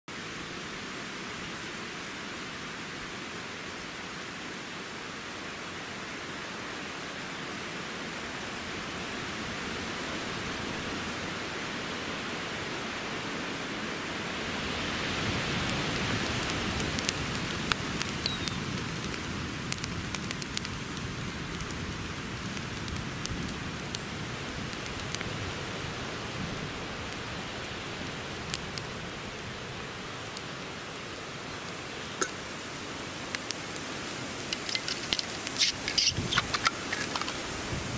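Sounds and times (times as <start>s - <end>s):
steady rushing hiss: 0.1s - 37.9s
campfire crackling and popping: 15.0s - 37.9s.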